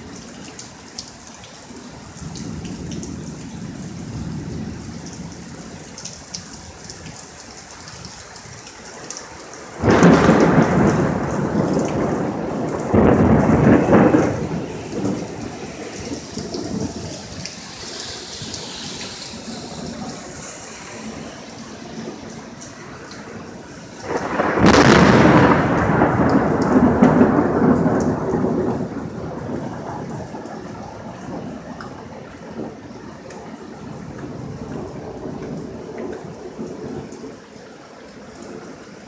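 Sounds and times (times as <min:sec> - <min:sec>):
steady rain falling: 0:00.0 - 0:39.0
thunder rumbling and cracking: 0:09.7 - 0:37.4.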